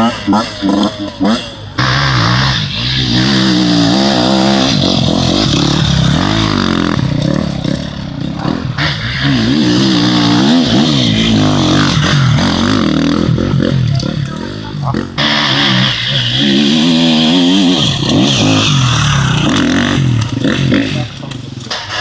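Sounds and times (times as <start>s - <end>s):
dirt bike engines revving: 0.0s - 22.0s.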